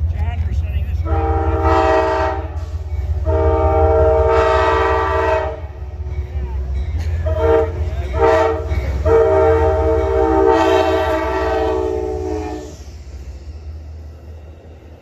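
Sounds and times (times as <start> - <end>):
train rumbling past: 0.0 - 15.0
train horn blasts: 1.0 - 5.8, 7.2 - 12.8.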